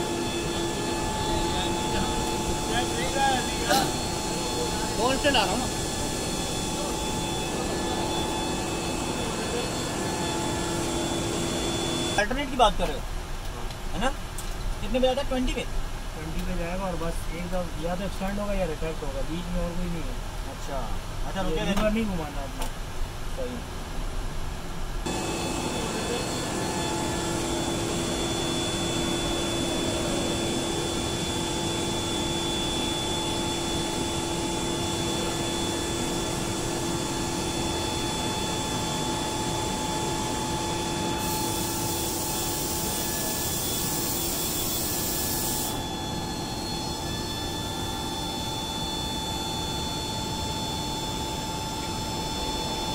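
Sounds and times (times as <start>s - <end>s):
mechanical whine of flap drive: 0.0s - 12.2s, 25.1s - 52.9s
high hiss: 25.0s - 48.9s.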